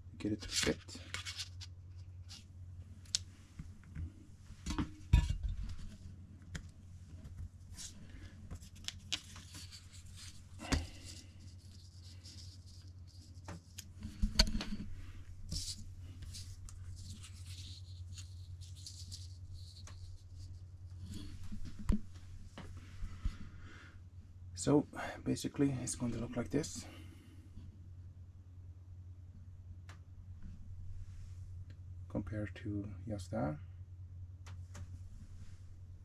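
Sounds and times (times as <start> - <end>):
steady low hum: 0.0 - 36.0
stickers rustling: 15.5 - 21.6.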